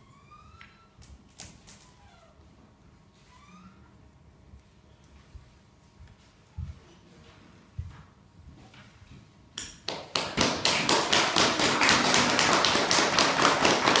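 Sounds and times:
audience applause: 10.1 - 14.0.

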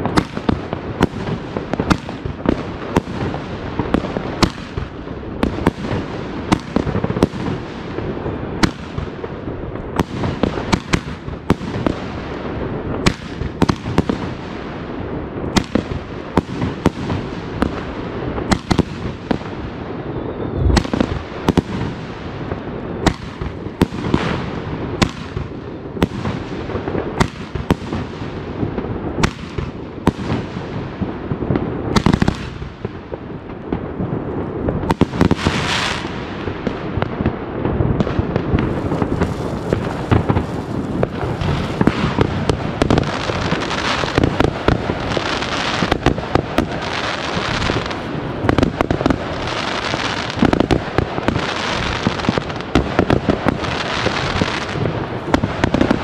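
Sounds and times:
distant fireworks crackling rumble: 0.0 - 56.0
firecrackers sharp bangs: 0.0 - 56.0
deep firework boom: 20.3 - 22.0, 38.0 - 45.0.

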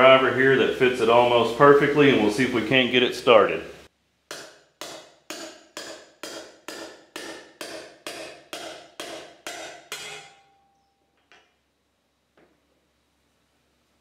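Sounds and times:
hammer striking steel driver: 4.3 - 11.5.

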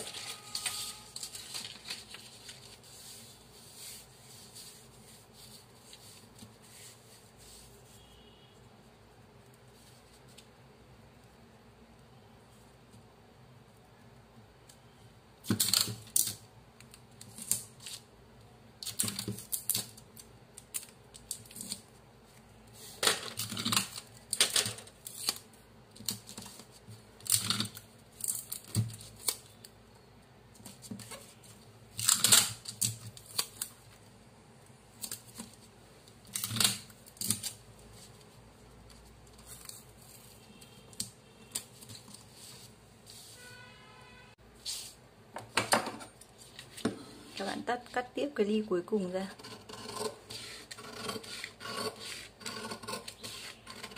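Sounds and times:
paper rustling and scraping: 0.0 - 8.1, 41.6 - 43.4, 50.2 - 53.9.

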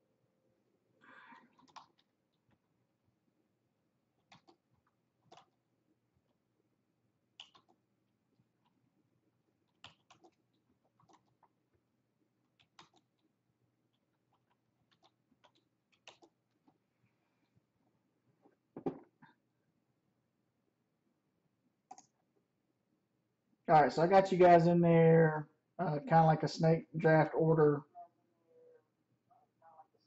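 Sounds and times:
typing on computer keyboard: 1.5 - 2.1, 4.2 - 5.6, 7.3 - 7.8, 9.6 - 11.6, 12.5 - 13.3, 13.9 - 16.7.

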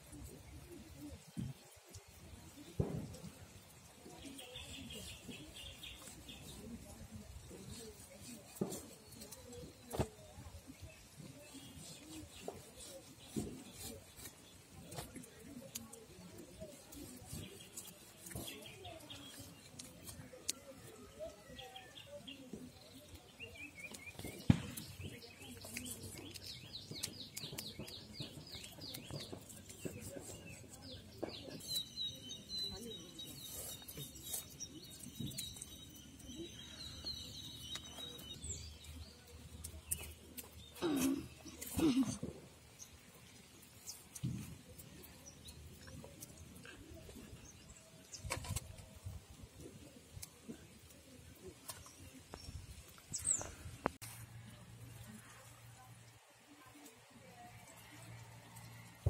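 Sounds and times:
bird chirps: 23.4 - 39.3.

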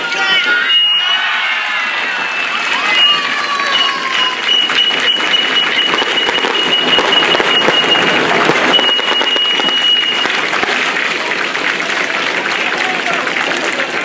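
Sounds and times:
crowd applauding: 0.0 - 14.0
high steady tone: 2.8 - 10.7.

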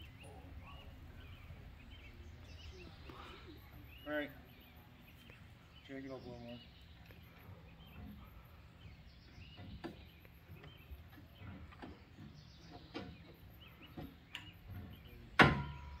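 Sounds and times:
birds chirping: 0.0 - 16.0
light clicks and knocks: 9.3 - 16.0.

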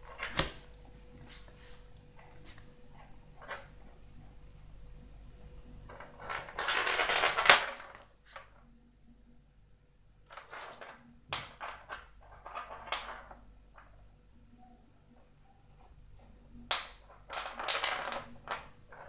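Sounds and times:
walnut rolling on tile floor: 5.8 - 8.7, 10.2 - 14.0, 15.8 - 19.0.

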